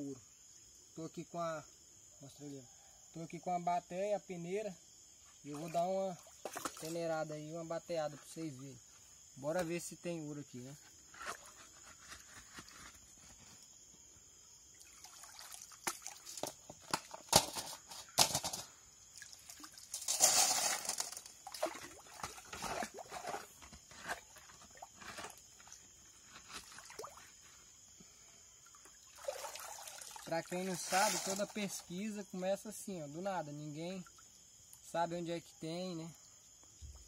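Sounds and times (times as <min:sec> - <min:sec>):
water sloshing and splashing: 0:05.5 - 0:07.0, 0:14.7 - 0:17.7, 0:19.1 - 0:27.5, 0:28.7 - 0:31.6
shovel scraping wet gravel: 0:19.8 - 0:25.5, 0:30.6 - 0:31.6.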